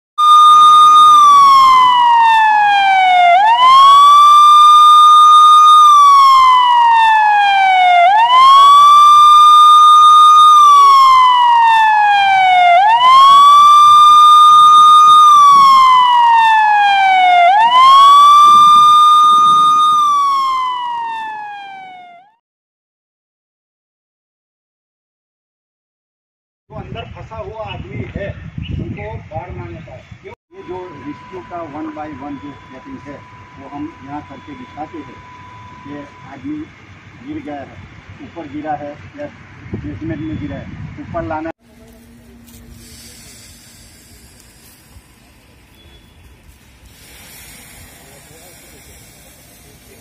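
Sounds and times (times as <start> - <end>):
fire engine siren wailing: 0.2 - 22.4, 30.5 - 40.4.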